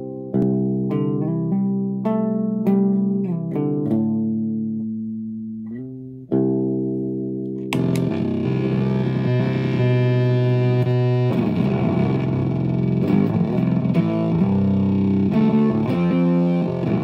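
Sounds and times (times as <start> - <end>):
electric guitar notes: 7.5 - 17.0.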